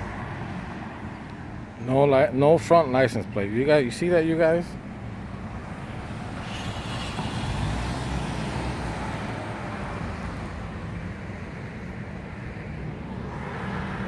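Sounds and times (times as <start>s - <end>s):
pickup truck driving past: 6.0s - 10.8s.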